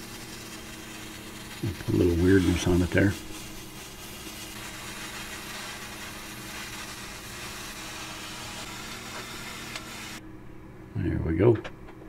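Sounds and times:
torch flame hissing: 0:00.0 - 0:10.2
low steady hum: 0:00.0 - 0:12.0.

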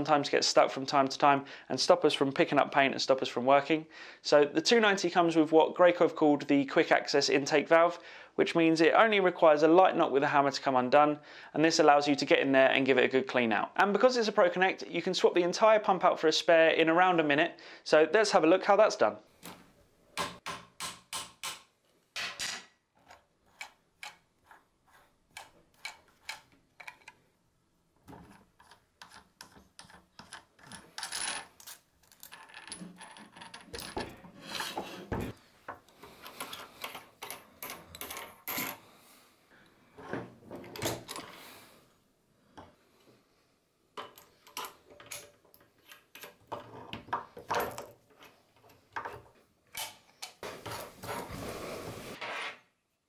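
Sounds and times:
metal parts clicking and clinking: 0:28.2 - 0:34.2, 0:36.2 - 0:38.8, 0:44.0 - 0:46.6.

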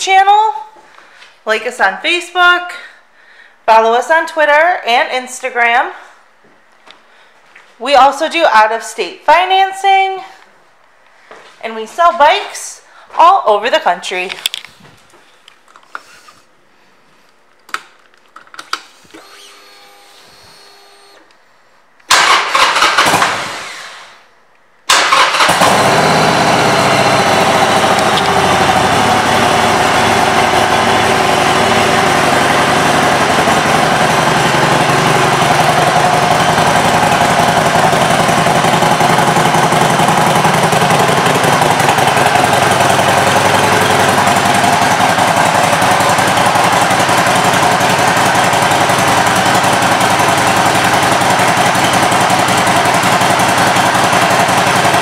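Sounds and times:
motorcycle engine starting and idling: 0:22.1 - 0:24.2, 0:24.9 - 0:55.0.

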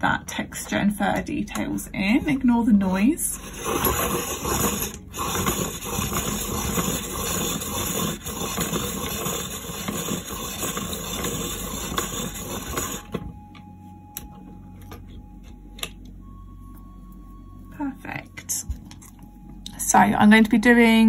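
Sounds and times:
electric pencil sharpener grinding: 0:02.0 - 0:13.3.

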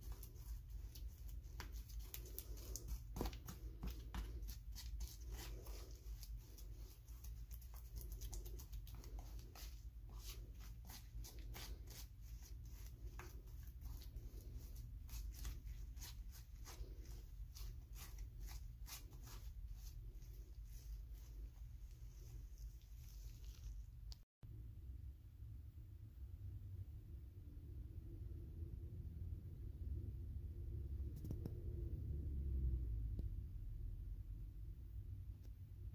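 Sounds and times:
palette knife stirring thick paint: 0:00.0 - 0:24.0.

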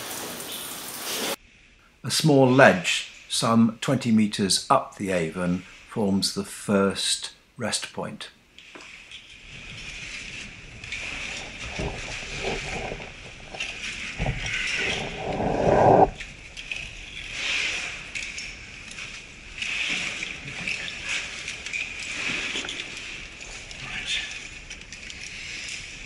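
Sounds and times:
climbing gear scraping on rope: 0:08.9 - 0:26.0.

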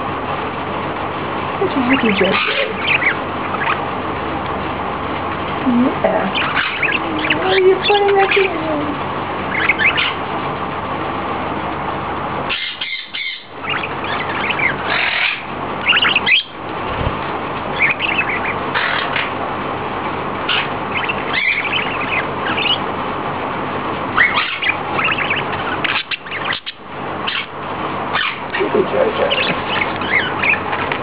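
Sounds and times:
budgerigars chirping: 0:01.6 - 0:08.8, 0:09.4 - 0:10.4, 0:12.4 - 0:17.0, 0:17.6 - 0:19.4, 0:20.3 - 0:23.0, 0:24.0 - 0:31.0.

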